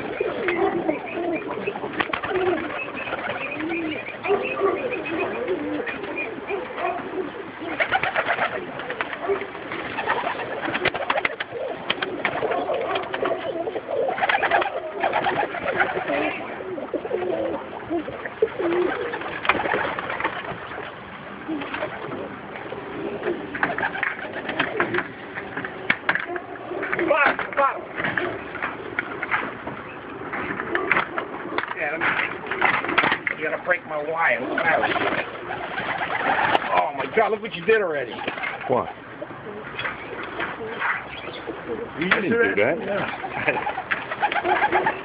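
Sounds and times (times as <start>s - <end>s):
pigeons cooing: 0.0s - 45.0s
rapid clatter bursts: 7.6s - 13.4s, 18.8s - 21.0s, 30.3s - 38.9s.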